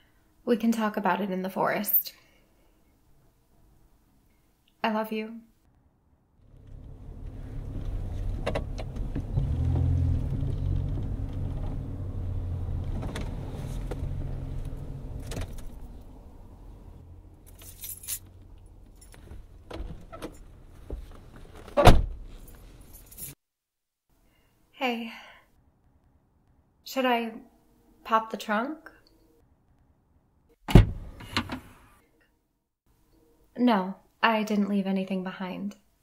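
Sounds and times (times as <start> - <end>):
car engine rumble: 6.3 - 23.0.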